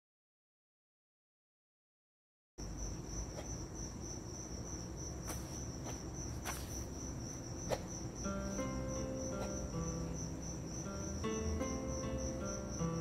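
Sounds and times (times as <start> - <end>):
crickets chirring: 2.6 - 13.0
low background rumble: 2.6 - 13.0.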